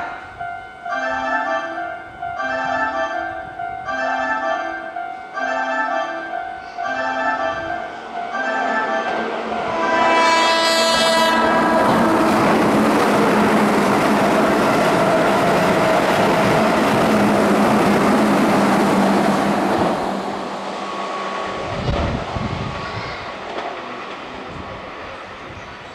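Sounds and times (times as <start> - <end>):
train horn: 5.4 - 12.8
train wheels rushing on rail: 6.6 - 25.9.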